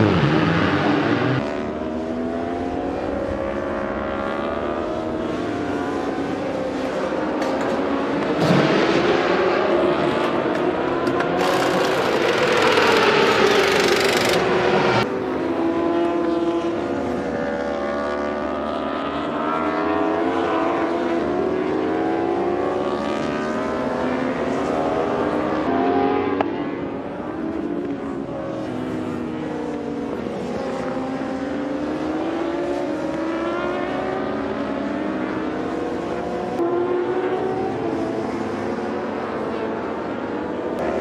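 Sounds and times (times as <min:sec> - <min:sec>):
racing motorbike engines: 0:00.0 - 0:41.0.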